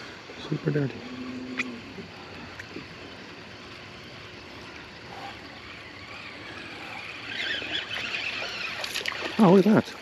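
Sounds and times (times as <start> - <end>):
water around a boat: 0.0 - 10.0
wind: 0.0 - 10.0.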